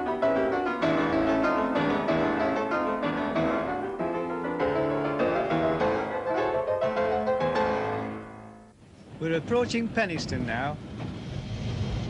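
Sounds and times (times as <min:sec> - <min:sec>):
piano music: 0:00.0 - 0:08.8.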